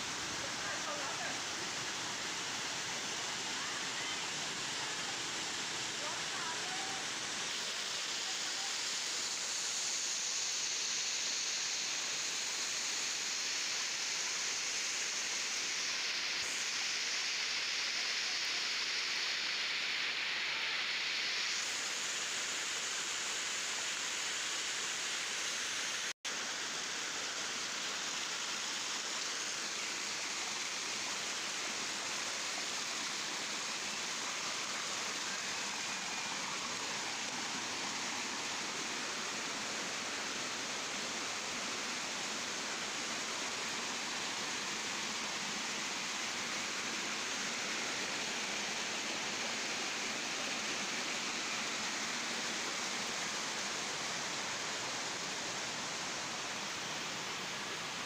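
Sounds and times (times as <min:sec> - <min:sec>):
waterfall rushing: 0:00.0 - 0:11.9, 0:27.6 - 0:58.0.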